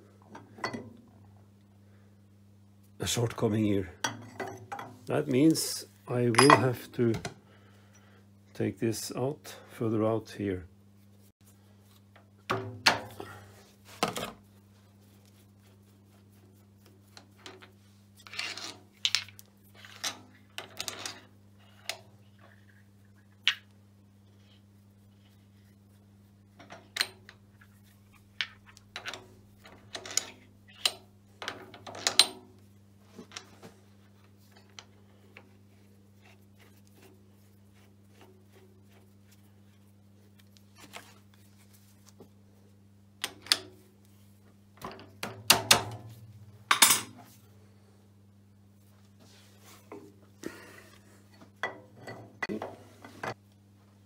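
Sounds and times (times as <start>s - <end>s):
steady low hum: 21.2s - 54.0s.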